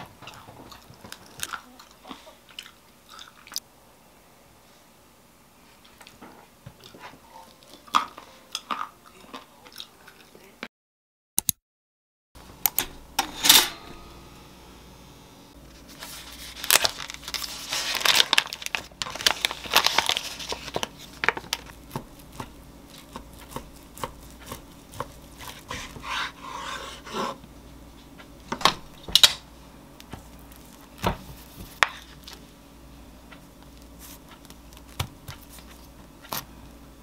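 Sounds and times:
plastic wrapper tearing and crinkling: 0:15.7 - 0:25.6.

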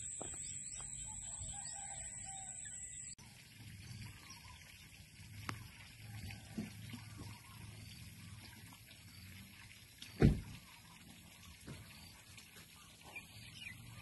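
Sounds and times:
faint high chirps: 0:00.0 - 0:03.2.

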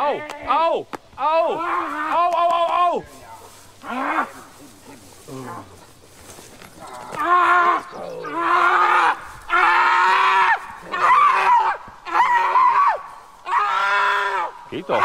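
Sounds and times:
man yelling: 0:00.0 - 0:03.2, 0:07.2 - 0:15.0.

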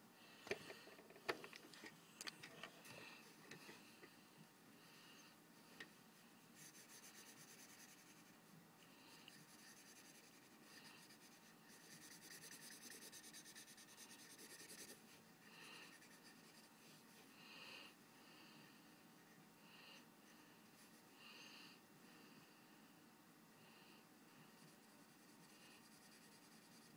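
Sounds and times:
highlighter scratching on paper: 0:06.6 - 0:08.4, 0:09.1 - 0:16.8, 0:24.6 - 0:26.9.

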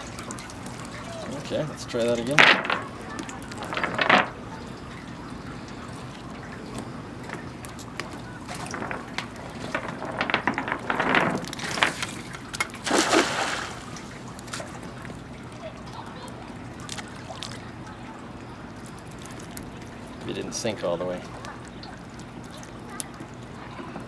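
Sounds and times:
water dripping and trickling: 0:00.0 - 0:24.0
net splashing into water: 0:11.6 - 0:14.8.

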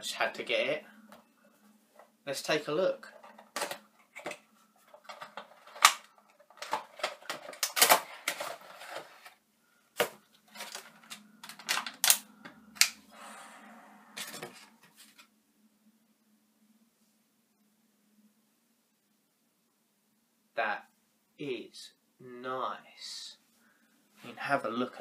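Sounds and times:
sharp clicks taps and crinkles: 0:03.1 - 0:09.3, 0:10.0 - 0:13.0
cardboard box and plastic tray handled: 0:03.1 - 0:09.4.

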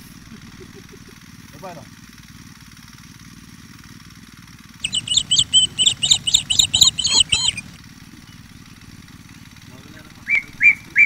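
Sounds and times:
songbird chirping: 0:04.8 - 0:08.5.

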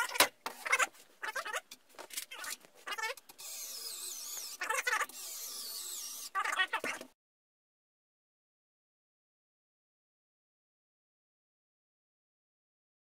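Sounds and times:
short squeaky sounds: 0:02.2 - 0:07.0
electric screwdriver whining: 0:03.3 - 0:06.4.

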